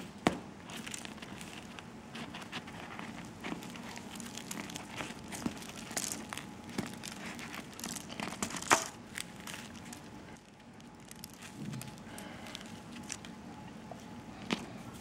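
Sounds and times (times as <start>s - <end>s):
bread crust crackling: 0.5s - 14.3s
baking paper crinkling: 0.6s - 13.4s.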